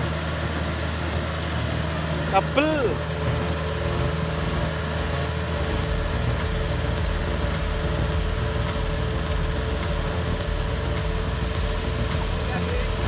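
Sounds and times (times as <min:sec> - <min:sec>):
diesel engine droning: 0:00.0 - 0:13.0.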